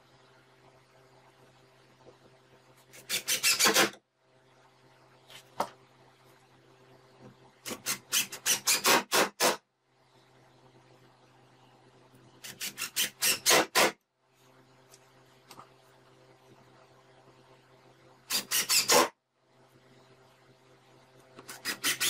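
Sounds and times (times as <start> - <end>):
drill driving screws into plywood: 2.9 - 4.0, 7.6 - 9.6, 12.4 - 14.0, 18.3 - 19.2, 21.5 - 22.0.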